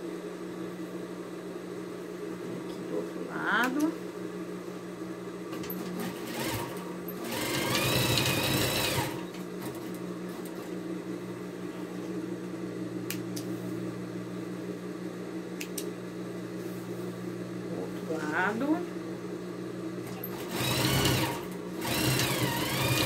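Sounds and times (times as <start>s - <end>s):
sewing machine running: 5.7s - 9.9s, 20.1s - 23.0s.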